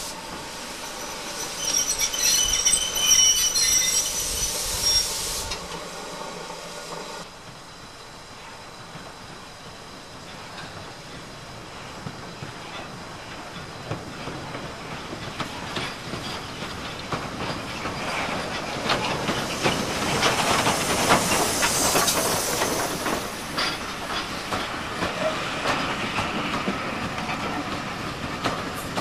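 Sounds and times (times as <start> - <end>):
steam locomotive hissing: 0.0 - 7.5, 8.3 - 29.0
train wheels clicking over rail joints: 10.2 - 29.0.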